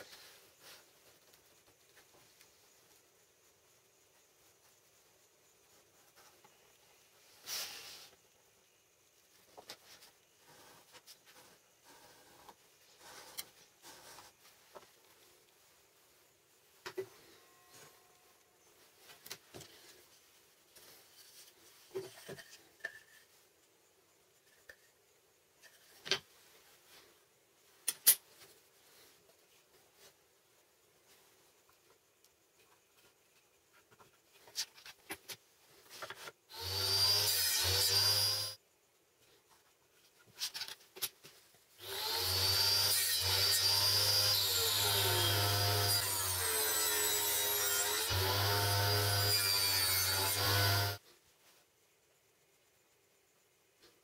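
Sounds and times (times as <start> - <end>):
wooden pieces set on a tabletop: 9.5 - 15.6, 20.8 - 23.7, 31.6 - 36.4
table saw cutting wood: 36.5 - 38.6, 41.8 - 51.0.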